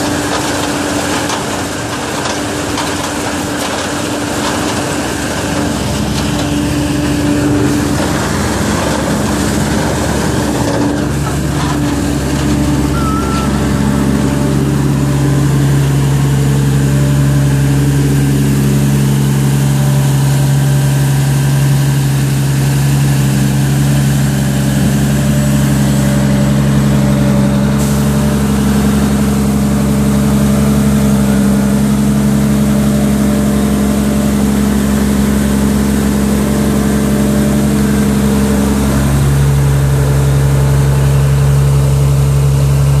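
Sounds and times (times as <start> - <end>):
machinery hum: 0.0 - 20.1
harvester engine drone: 0.0 - 43.0.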